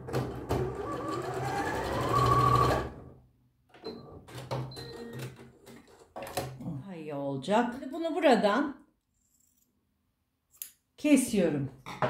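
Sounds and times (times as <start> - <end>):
sewing machine motor: 0.5 - 3.0.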